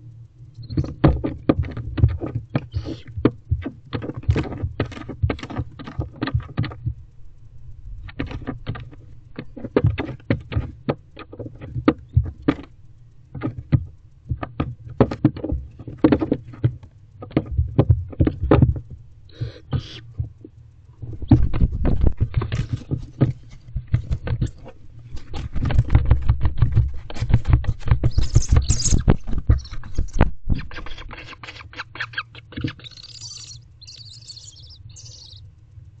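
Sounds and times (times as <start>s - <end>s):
wings and feet knocking on box walls: 0.8s - 6.9s, 21.3s - 30.7s
owl twittering calls: 2.6s - 3.2s, 19.3s - 20.1s, 28.0s - 35.4s.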